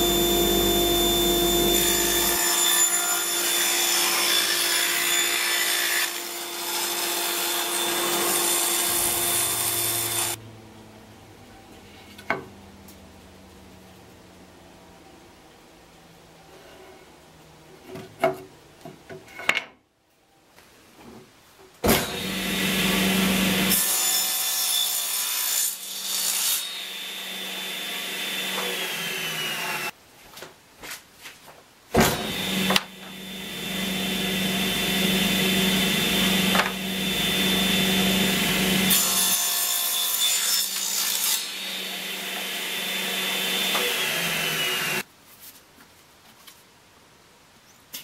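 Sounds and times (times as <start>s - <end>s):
table saw cutting wood: 0.0s - 10.4s, 21.8s - 29.9s, 32.0s - 45.0s.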